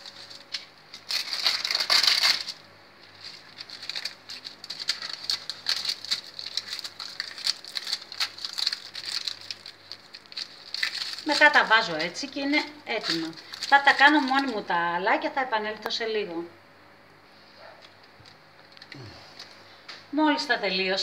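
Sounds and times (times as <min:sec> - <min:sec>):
baking paper rustling: 0:00.0 - 0:14.9.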